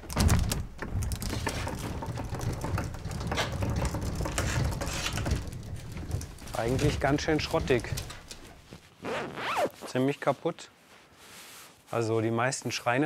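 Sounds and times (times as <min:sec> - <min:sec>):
wooden dresser rattling and clattering: 0:00.0 - 0:08.7.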